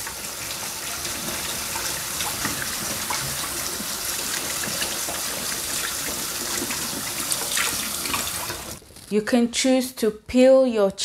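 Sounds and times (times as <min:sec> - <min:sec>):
tap water splashing: 0:00.0 - 0:08.8.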